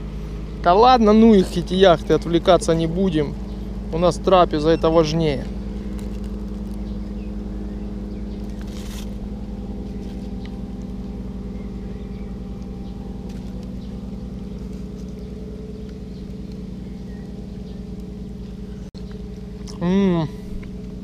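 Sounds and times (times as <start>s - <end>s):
boat engines droning: 0.0s - 21.0s
aluminium foil rustling: 5.0s - 7.1s, 8.4s - 11.5s.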